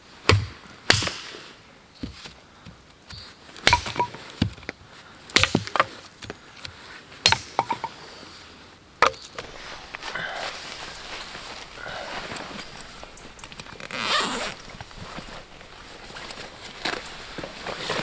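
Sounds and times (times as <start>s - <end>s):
billhook chopping wooden pole: 0.3s - 1.3s, 3.6s - 4.6s, 5.3s - 6.4s, 7.2s - 7.9s.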